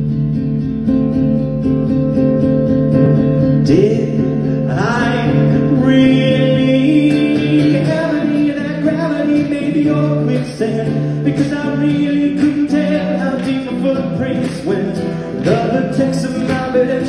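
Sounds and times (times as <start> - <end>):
acoustic guitar strumming: 0.0 - 17.0
person singing: 3.6 - 17.0.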